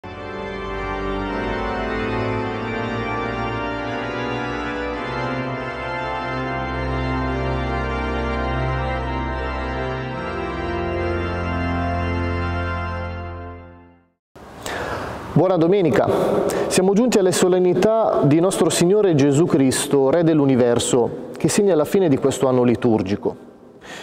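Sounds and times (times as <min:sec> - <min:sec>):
organ chords: 0:00.0 - 0:15.4.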